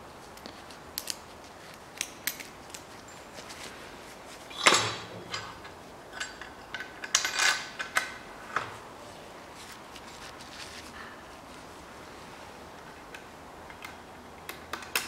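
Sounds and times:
metal clinks and knocks: 0:04.6 - 0:08.2.

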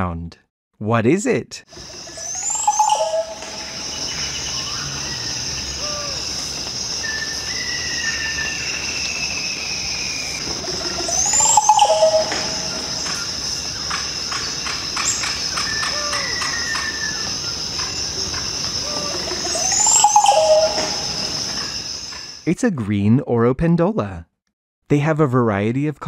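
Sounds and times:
high insect drone: 0:01.7 - 0:22.4
bird gurgling song: 0:01.8 - 0:22.4
thin gliding whistles: 0:02.0 - 0:06.2, 0:07.0 - 0:13.2, 0:15.0 - 0:18.0, 0:18.8 - 0:22.3.

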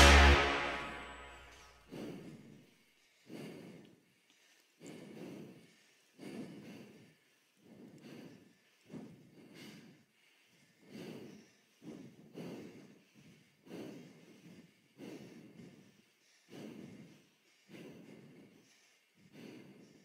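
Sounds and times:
faint heavy breathing: 0:01.9 - 0:20.0.

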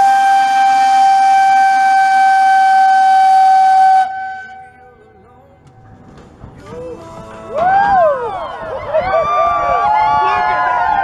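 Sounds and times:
loud horn blast: 0:00.0 - 0:04.8.

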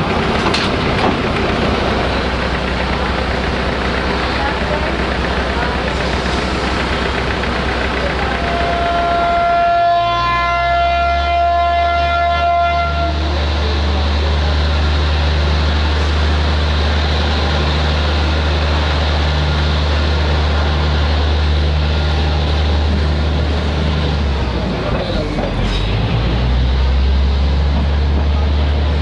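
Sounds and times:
train engine rumble: 0:00.0 - 0:29.0
train horn: 0:08.2 - 0:13.3.

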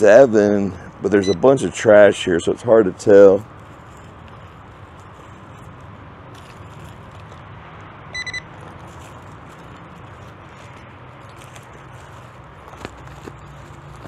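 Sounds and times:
steady low hum: 0:00.0 - 0:14.0
metal detector beeping: 0:01.1 - 0:01.6, 0:08.1 - 0:08.5.

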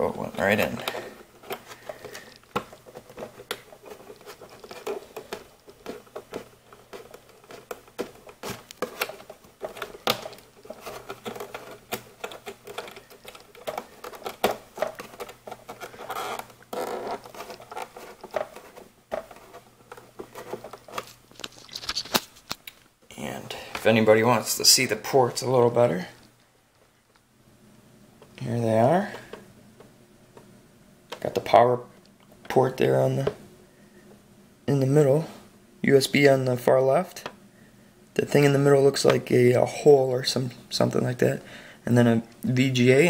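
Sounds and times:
plastic rubbing on plastic: 0:00.0 - 0:22.8.

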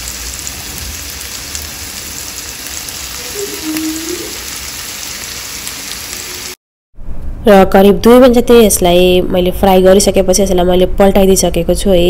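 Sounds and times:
fish sizzling in a frying pan: 0:00.0 - 0:06.6.

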